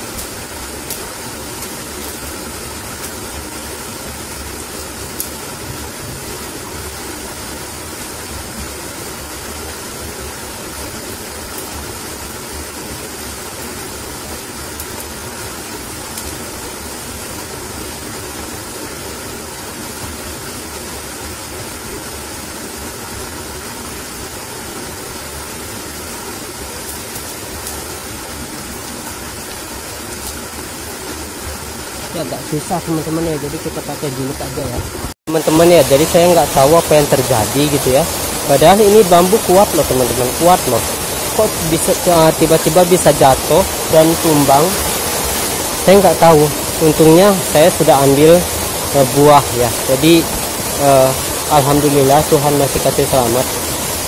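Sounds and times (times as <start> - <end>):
steady outdoor rushing noise: 0.0 - 54.0.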